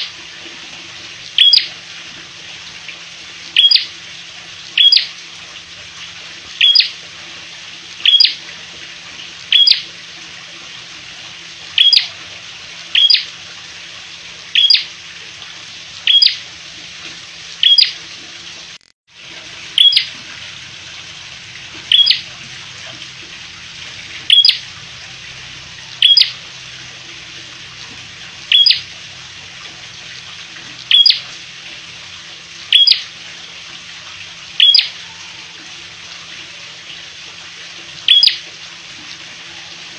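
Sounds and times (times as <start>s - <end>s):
songbird high chirps: 1.4s - 1.7s, 3.6s - 3.8s, 4.8s - 5.1s, 6.6s - 6.9s, 8.0s - 8.4s, 9.5s - 9.8s, 11.8s - 12.1s, 13.0s - 13.2s, 14.6s - 14.8s, 16.1s - 16.4s, 17.6s - 17.9s, 19.8s - 20.1s, 21.9s - 22.2s, 26.0s - 26.3s, 28.5s - 28.8s, 30.9s - 31.2s, 34.6s - 34.9s, 38.1s - 38.4s.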